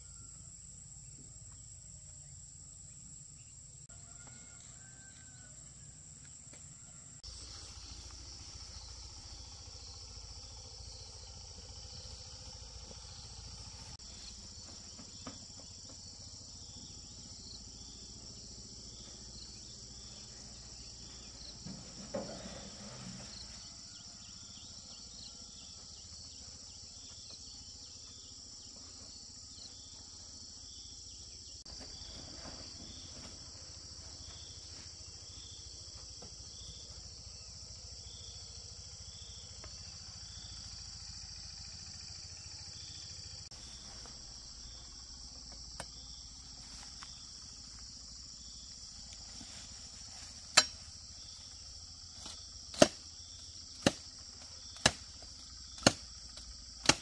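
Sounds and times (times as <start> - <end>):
insect chirp: 0.0 - 57.0
insects trilling: 0.0 - 57.0.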